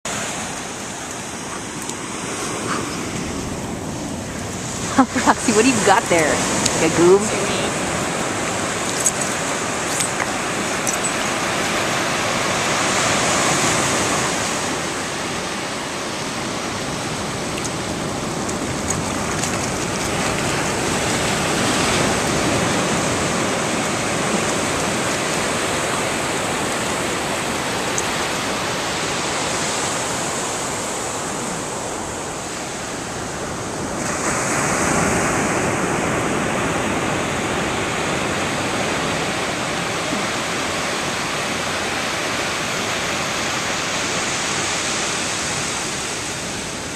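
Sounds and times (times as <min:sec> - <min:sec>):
ocean waves breaking on beach: 0:00.1 - 0:46.9.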